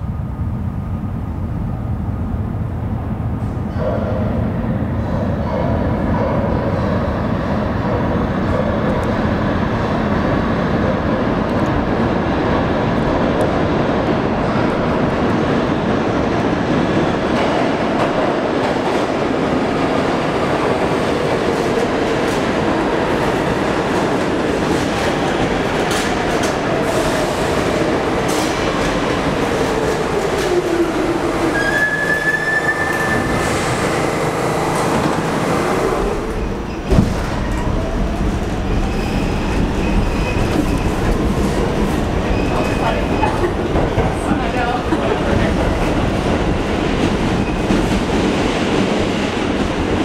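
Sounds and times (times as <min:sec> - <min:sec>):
subway train wheels rumbling on rail: 0:00.0 - 0:50.0
high brake squeal: 0:31.5 - 0:33.5
sudden thump: 0:36.9 - 0:37.4.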